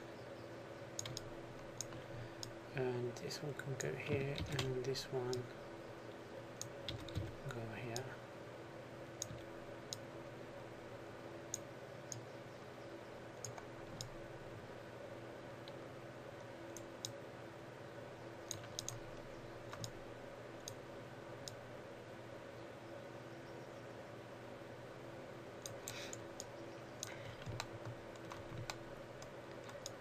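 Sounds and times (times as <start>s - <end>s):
faint steady hum: 0.0s - 30.0s
mouse and keyboard clicks: 18.5s - 19.1s, 19.7s - 20.0s, 25.6s - 30.0s.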